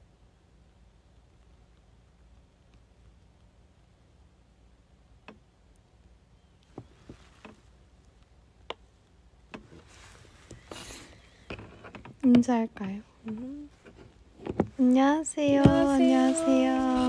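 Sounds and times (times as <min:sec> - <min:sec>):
faint clicks and taps: 0:01.1 - 0:03.6, 0:05.2 - 0:05.9, 0:06.6 - 0:10.8, 0:11.5 - 0:16.0
soft rustling: 0:06.6 - 0:08.3, 0:08.9 - 0:17.0.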